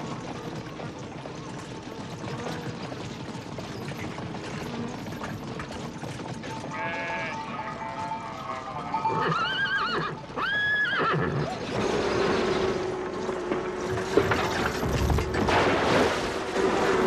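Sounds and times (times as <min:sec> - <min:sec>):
rumbling hooves and cart: 0:00.0 - 0:17.0
horses whinnying: 0:06.5 - 0:13.0.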